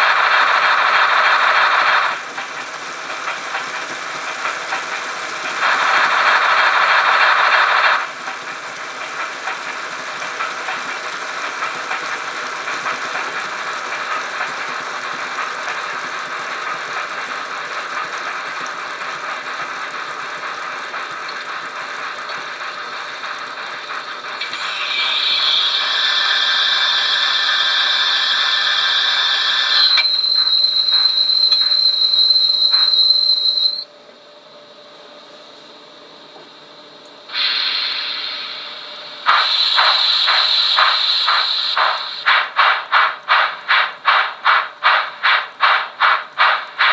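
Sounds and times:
model steam locomotive sounds: 0.0 - 33.9, 36.0 - 46.9
steady high tone: 27.6 - 33.9
high hissing: 37.3 - 46.9.

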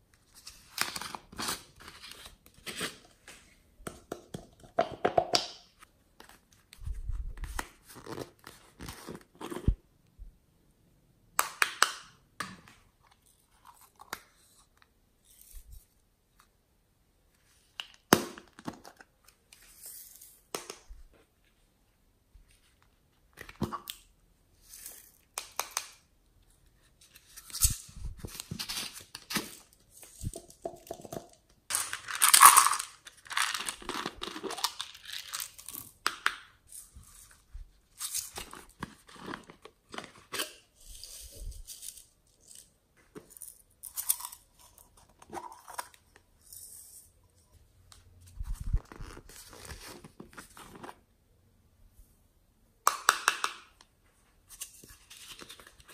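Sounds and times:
beads rattling into glass tray: 31.7 - 33.8.

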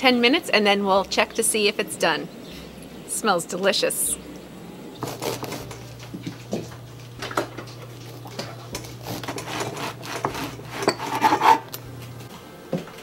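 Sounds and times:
steady low hum: 0.0 - 13.0
knife sawing through bread crust: 5.0 - 5.8, 8.9 - 11.7.

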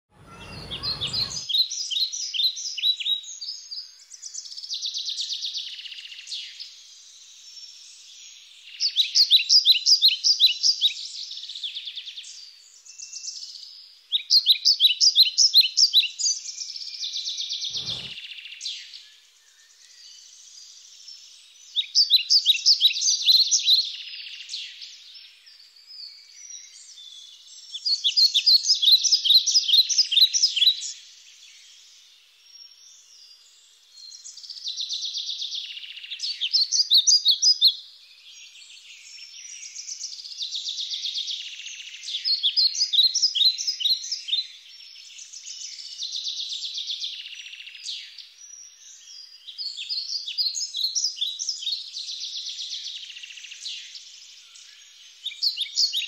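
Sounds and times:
buzzy bird notes: 0.1 - 1.4
bird chirping: 0.1 - 56.0.

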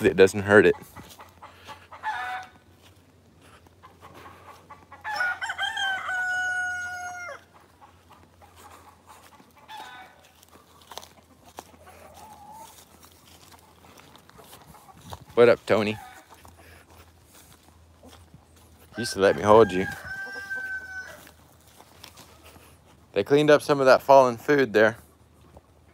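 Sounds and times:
chickens clucking: 0.0 - 25.9
rooster crowing: 2.0 - 2.6, 5.0 - 7.5, 9.7 - 10.3, 18.9 - 21.4.

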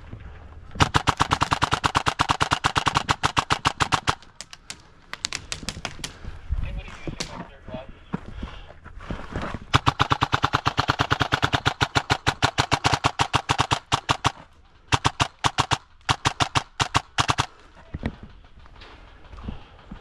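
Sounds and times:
airsoft gun firing bursts: 0.8 - 4.5, 9.7 - 17.7.

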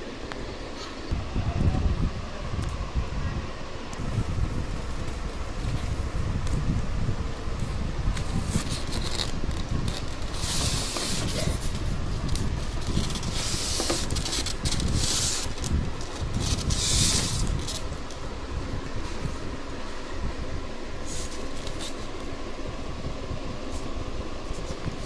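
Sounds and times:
steady low rumble: 0.0 - 25.0
cardboard and styrofoam rustling: 8.2 - 18.2.

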